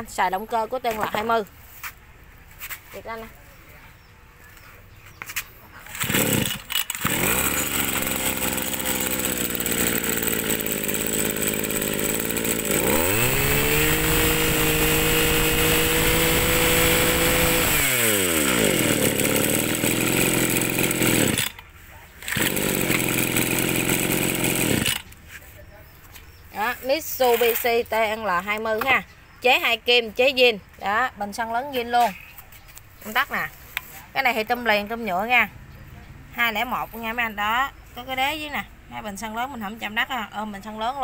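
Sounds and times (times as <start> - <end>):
brush-cutter pull start: 5.8 - 25.2
two-stroke brush-cutter engine: 5.8 - 25.2.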